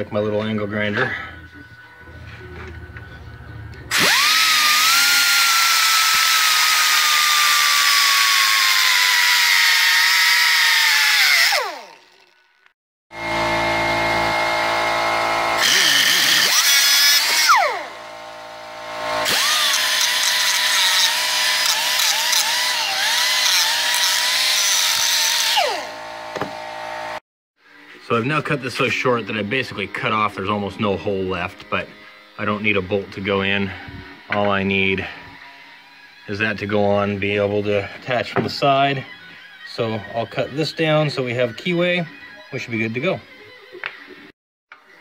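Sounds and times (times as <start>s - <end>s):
grinder cutting steel: 3.9s - 27.2s
grinder winding down: 3.9s - 27.2s.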